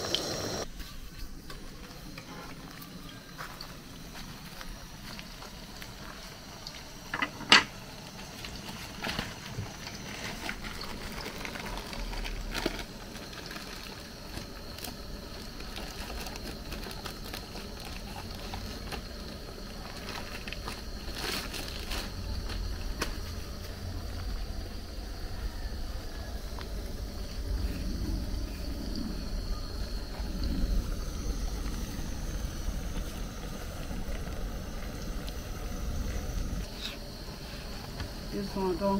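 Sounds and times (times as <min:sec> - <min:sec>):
plantain sizzling in hot oil: 0:00.0 - 0:23.8.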